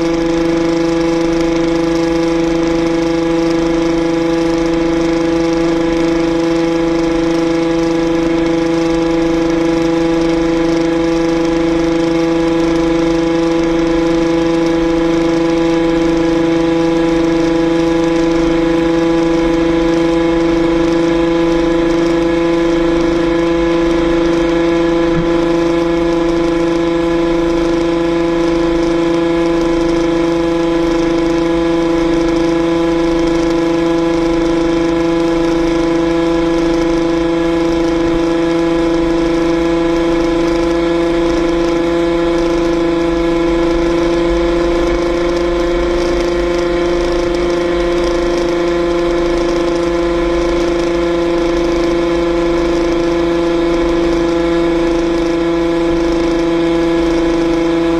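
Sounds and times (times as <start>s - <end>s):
two-stroke engine at high revs: 0.0s - 57.9s
wind rumbling on microphone: 22.7s - 27.2s.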